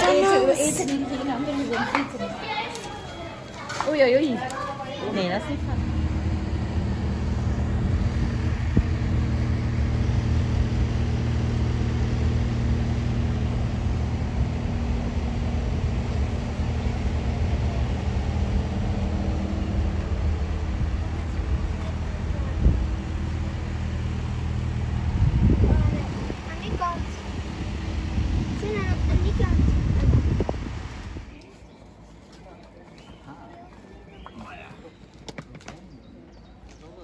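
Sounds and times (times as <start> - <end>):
diesel truck engine idling: 4.8 - 31.3.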